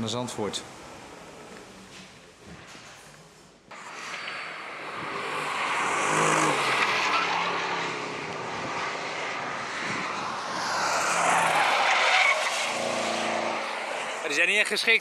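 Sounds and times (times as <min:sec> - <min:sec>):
race car engines passing: 0:03.1 - 0:15.0.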